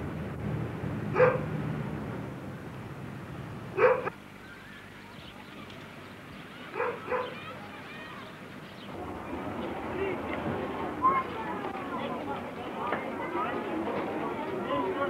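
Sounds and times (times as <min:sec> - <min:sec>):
low steady hum: 0:00.0 - 0:06.8.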